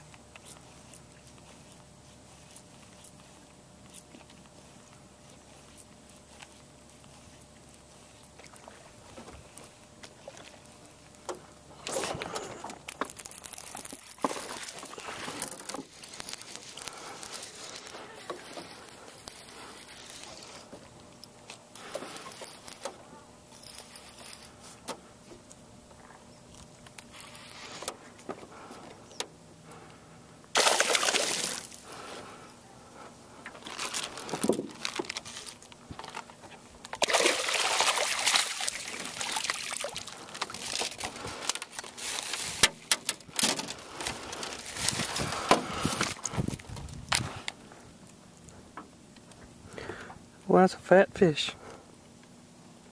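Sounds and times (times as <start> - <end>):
fish splashing in water: 30.5 - 32.1, 37.0 - 46.4.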